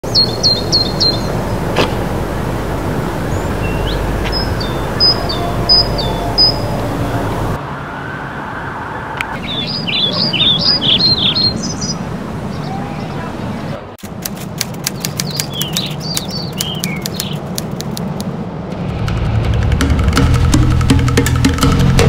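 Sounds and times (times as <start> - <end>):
small birds chirping: 0.0 - 2.0, 3.2 - 7.6, 9.3 - 13.7, 14.6 - 18.2
low traffic rumble: 0.0 - 22.0.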